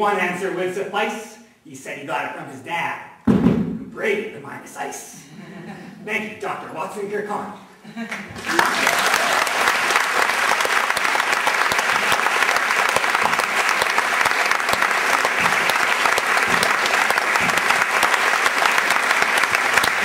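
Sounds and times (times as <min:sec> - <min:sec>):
audience applauding: 0:08.1 - 0:20.0.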